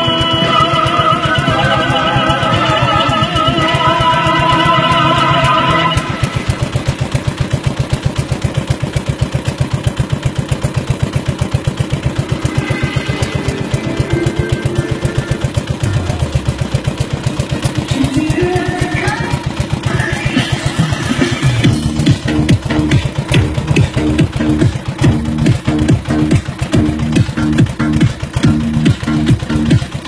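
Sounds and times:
voices or singing: 0.0 - 6.2
small boat engine thumping: 5.9 - 19.9, 20.6 - 30.0.

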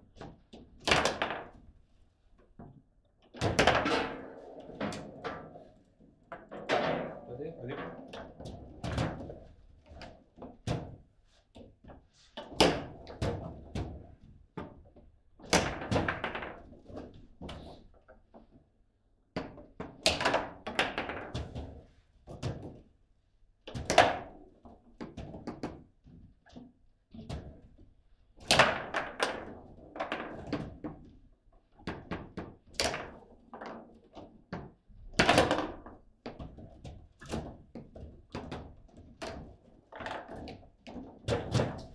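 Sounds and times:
foosball knocks and clacks: 0.2 - 1.8, 2.6 - 11.0, 11.6 - 18.6, 19.4 - 22.9, 23.7 - 27.8, 28.4 - 41.9.

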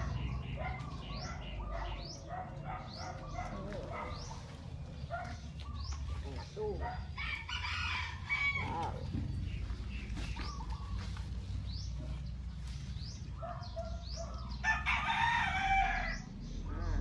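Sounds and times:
small birds chirping: 0.0 - 17.0
rooster crowing: 7.2 - 9.0, 14.6 - 16.4.

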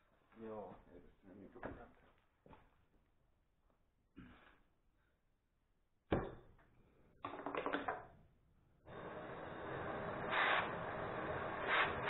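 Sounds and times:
gas torch hissing: 8.9 - 12.0
gas torch igniting pop: 8.9 - 12.0.

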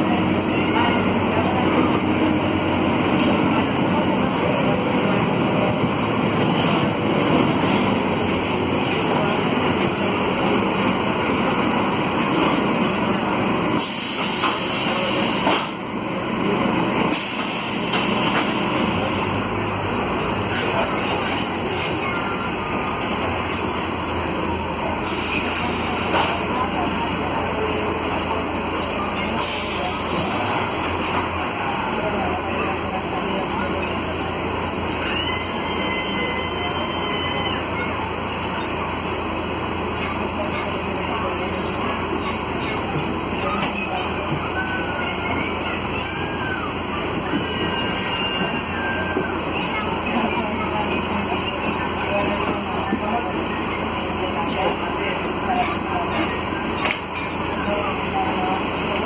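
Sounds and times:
road noise: 0.0 - 36.3
bus diesel engine running: 0.0 - 59.0
high-pitched squeal: 21.6 - 24.0.

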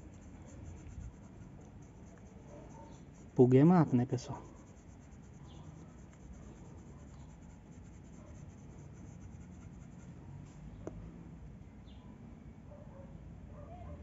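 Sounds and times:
pipe scratching on dog's coat: 0.0 - 10.2.

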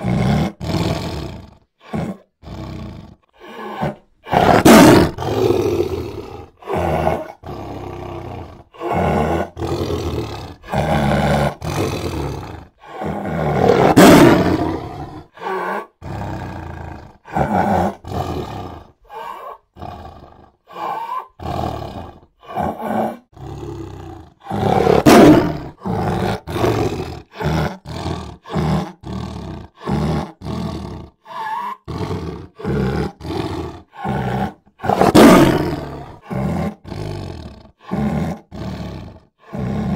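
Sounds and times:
big cats roaring: 0.0 - 39.9.

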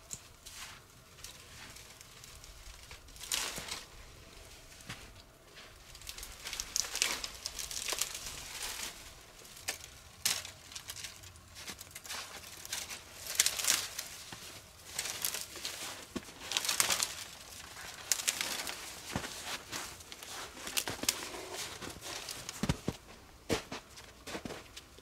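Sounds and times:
crinkling and rustling: 0.0 - 25.0
sharp crackles: 0.1 - 5.0, 5.7 - 23.0.

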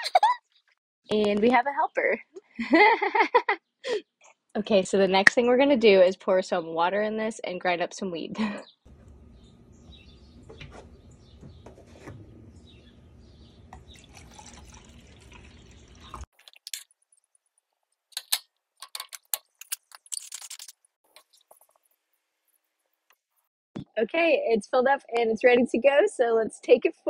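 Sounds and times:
water pouring and splashing: 13.8 - 17.4
clicks of small parts handled: 18.1 - 21.6.

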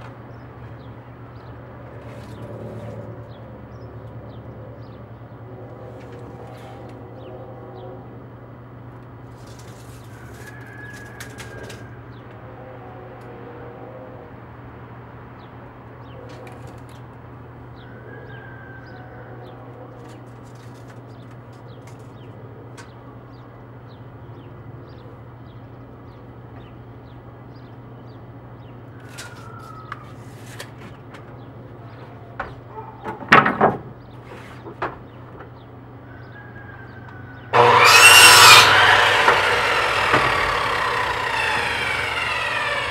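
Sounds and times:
wooden boards clattering: 32.5 - 35.0.

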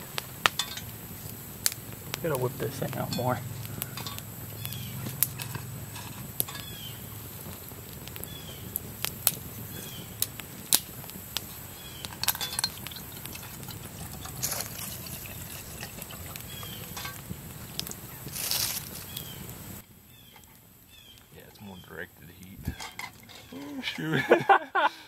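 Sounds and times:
campfire crackling: 0.0 - 25.0
water pouring into metal pot: 12.1 - 17.9.

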